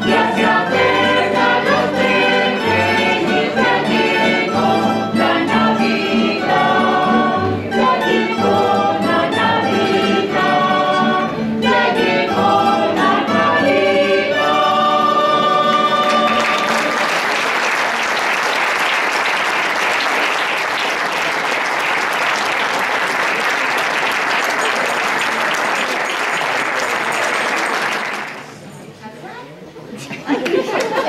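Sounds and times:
guitars and plucked strings: 0:00.0 - 0:16.4
choir singing: 0:00.0 - 0:17.1
audience applause: 0:16.0 - 0:28.6.

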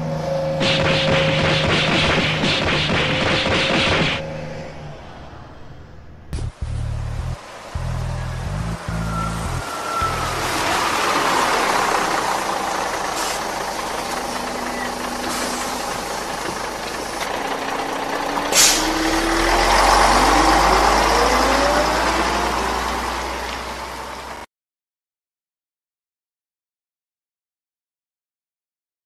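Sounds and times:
bus engine running: 0:00.0 - 0:24.5
bus whine pulling away: 0:00.0 - 0:24.5
air-brake hiss: 0:13.0 - 0:14.2, 0:18.5 - 0:19.0.

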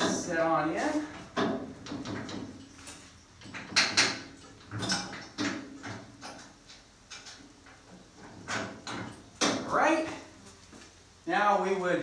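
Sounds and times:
metal clunks and knocks: 0:01.1 - 0:02.7, 0:03.4 - 0:09.7.

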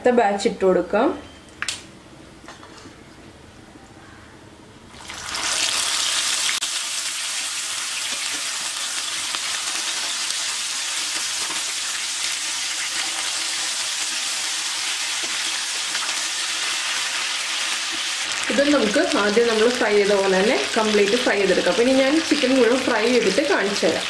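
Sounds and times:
chicken sizzling in hot oil: 0:05.0 - 0:24.0.

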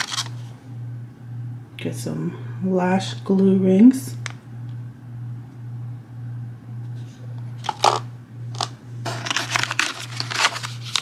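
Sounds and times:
foil pouches crinkling: 0:00.0 - 0:00.4, 0:07.6 - 0:08.0, 0:08.6 - 0:11.0
pulsing low hum: 0:00.0 - 0:10.9.

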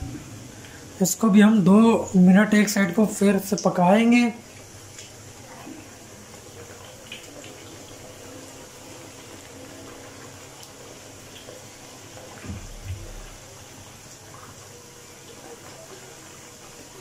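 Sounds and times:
dough frying in sizzling oil: 0:00.0 - 0:17.0.

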